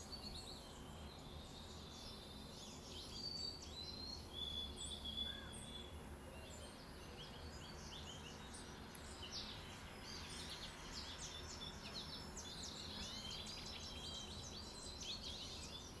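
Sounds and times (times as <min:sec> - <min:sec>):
songbirds chirping and whistling: 0:00.0 - 0:16.0.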